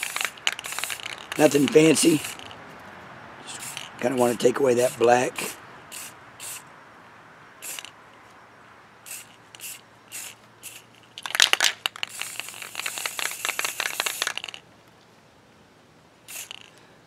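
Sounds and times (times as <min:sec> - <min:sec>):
loud crackling rattle: 0:00.0 - 0:02.6, 0:09.6 - 0:14.6
spray paint can hissing: 0:00.0 - 0:02.6, 0:03.4 - 0:06.7, 0:07.6 - 0:07.9, 0:09.0 - 0:14.6, 0:16.3 - 0:16.7.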